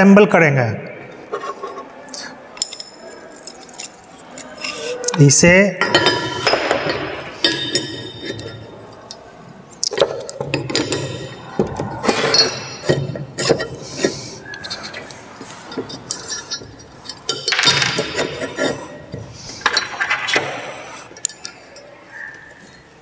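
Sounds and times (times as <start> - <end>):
metal clinks and knocks: 2.6 - 4.8, 5.8 - 21.9
metal scraping: 2.6 - 5.2, 5.8 - 9.2, 10.4 - 22.0.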